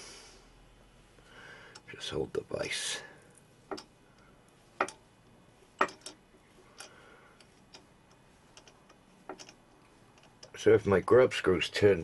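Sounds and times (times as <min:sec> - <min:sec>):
tap cutting thread metallic ticks: 0:03.7 - 0:05.0.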